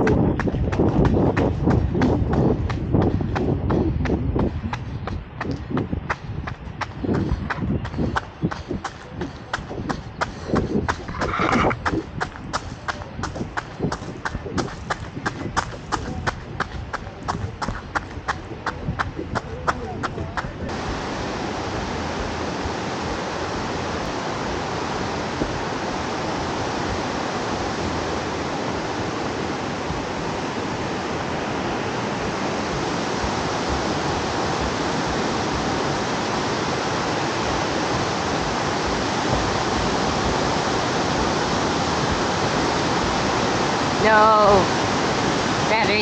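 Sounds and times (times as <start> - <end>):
river rushing over rocks: 20.7 - 46.0.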